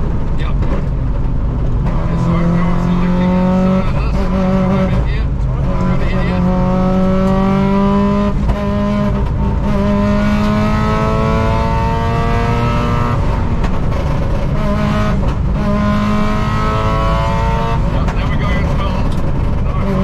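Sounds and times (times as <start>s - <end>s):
car engine accelerating hard: 0.0s - 20.0s.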